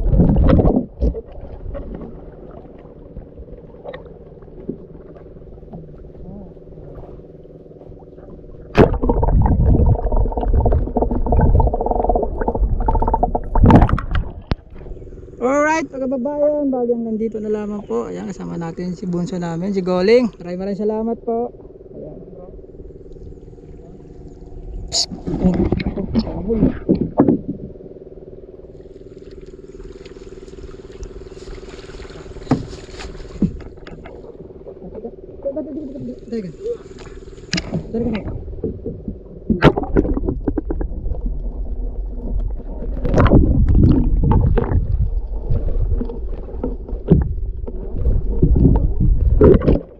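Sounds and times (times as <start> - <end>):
muffled underwater rumbling: 0.0 - 49.9
small boat engine running: 0.0 - 49.9
steady hum: 0.0 - 49.9
wooden paddle splashing water: 8.8 - 14.8, 29.2 - 34.3, 43.0 - 49.9.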